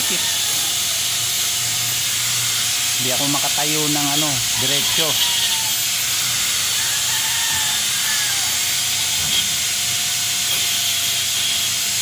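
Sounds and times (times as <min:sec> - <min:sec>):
power tool hissing: 0:00.0 - 0:12.0.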